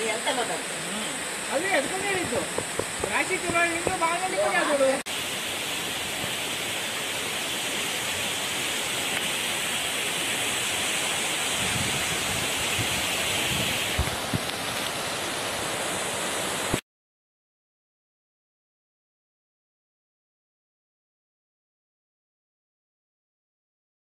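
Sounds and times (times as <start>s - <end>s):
waterfall rushing: 0.0s - 16.8s
low bumps: 1.9s - 4.5s.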